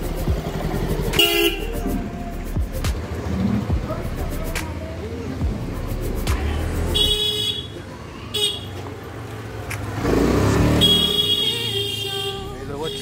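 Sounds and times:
motor vehicle passing: 0.0s - 7.1s, 8.8s - 11.4s
car horn toots: 1.1s - 2.0s, 6.9s - 7.8s, 10.7s - 13.0s.

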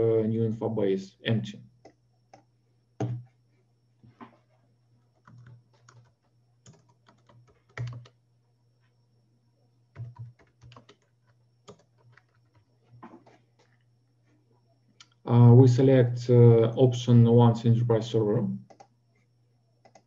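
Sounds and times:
faint low hum: 0.0s - 20.0s
computer keyboard typing: 1.8s - 3.3s, 5.2s - 8.2s, 9.9s - 13.8s, 18.6s - 18.9s, 19.8s - 20.0s.

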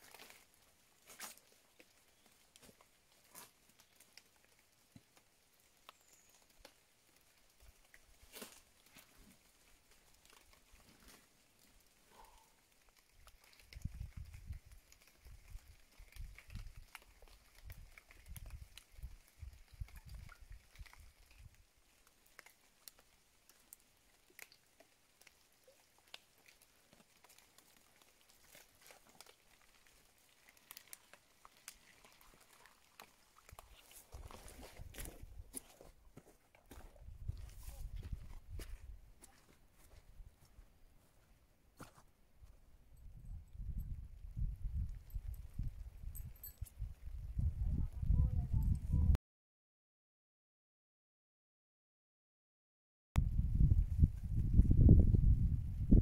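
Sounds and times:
light rain pattering: 0.0s - 36.8s
faint ticks and crackles: 0.0s - 41.2s, 43.4s - 49.0s.

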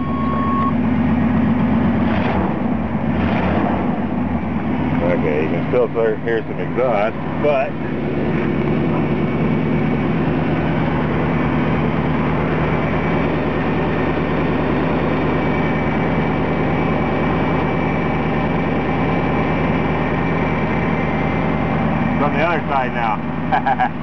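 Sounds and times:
vehicle engine idling: 0.0s - 24.0s.

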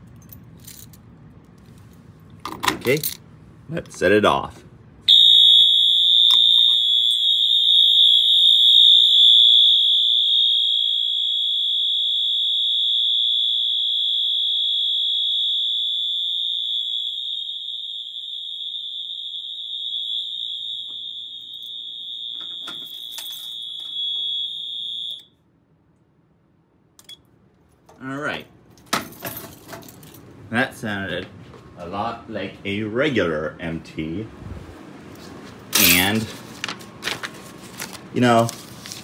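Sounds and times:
high-pitched alarm horn tone: 5.1s - 25.3s.

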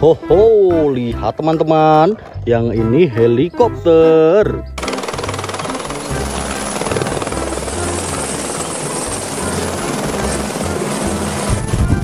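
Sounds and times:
helicopter rotor chopping: 4.8s - 12.0s.

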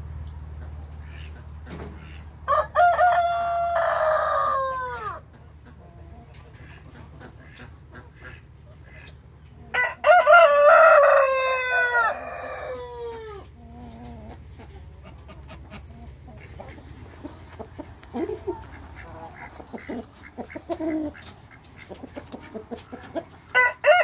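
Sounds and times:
rooster crowing: 2.5s - 5.2s, 9.7s - 13.4s, 23.5s - 24.0s.

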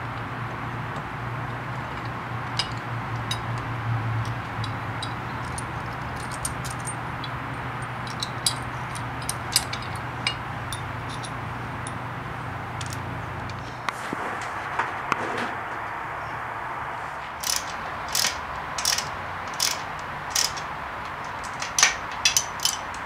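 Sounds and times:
low hum and hiss: 0.0s - 23.0s
small metal clinks: 1.8s - 12.0s, 17.4s - 23.0s.

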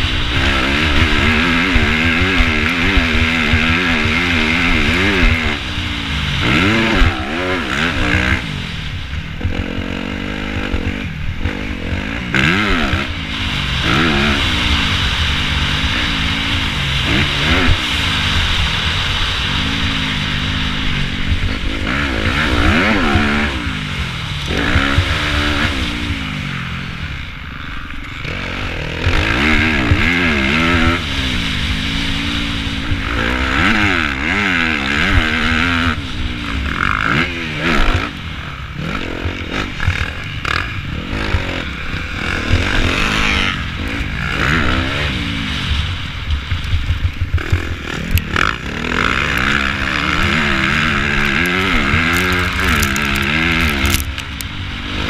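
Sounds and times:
motorcycle engine revving: 0.0s - 55.0s
wind rushing over camera: 0.0s - 55.0s.

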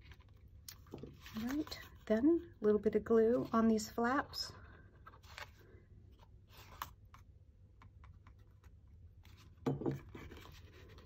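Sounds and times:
cardstock rustling: 0.0s - 2.1s.

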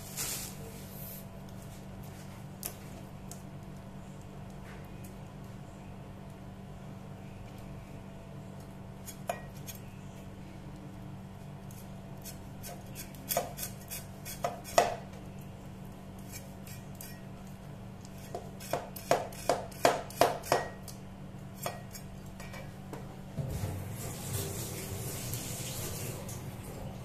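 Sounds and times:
cleaver chopping on wooden board: 18.7s - 20.7s.

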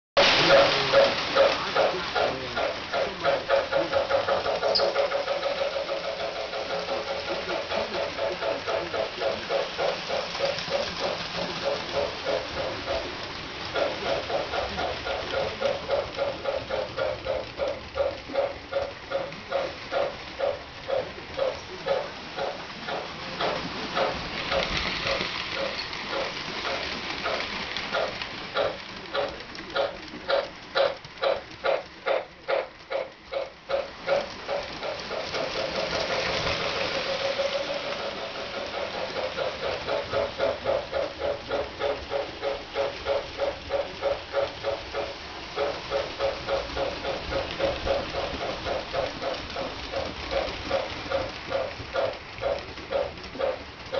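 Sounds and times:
model locomotive steam chuffing: 0.2s - 53.9s.

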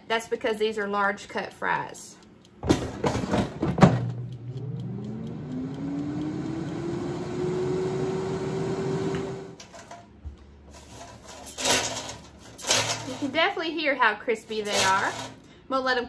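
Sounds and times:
air fryer basket knocks: 2.6s - 4.2s
air fryer fan whine: 2.6s - 13.2s.

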